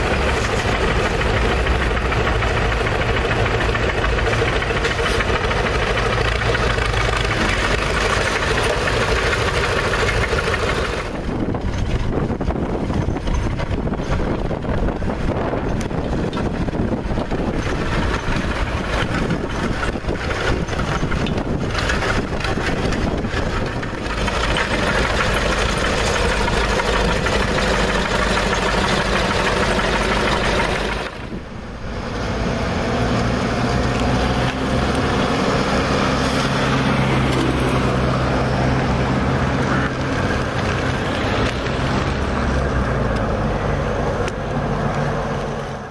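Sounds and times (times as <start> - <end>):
road roller engine running: 0.0 - 45.9
wind buffeting microphone: 9.4 - 43.1.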